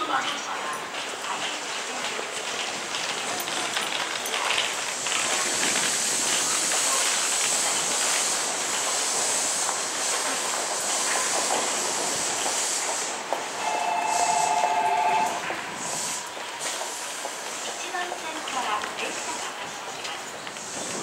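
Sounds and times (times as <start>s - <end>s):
electric train high hiss: 4.8s - 19.6s.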